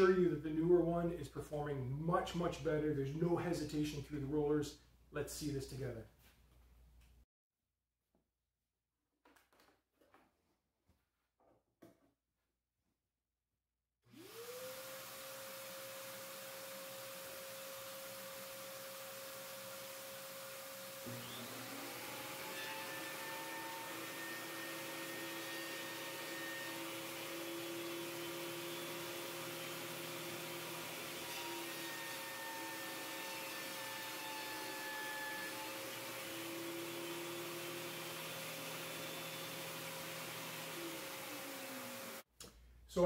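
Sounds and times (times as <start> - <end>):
thickness planer running: 14.2 - 42.2.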